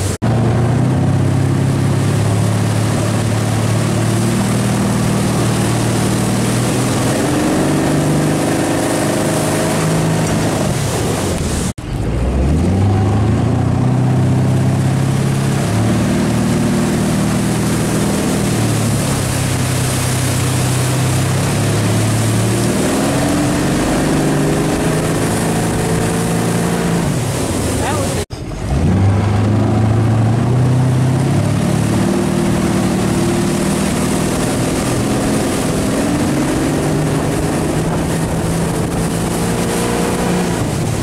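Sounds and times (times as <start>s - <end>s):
motorboat engine running: 0.0s - 41.0s
water rushing from wake: 0.0s - 41.0s.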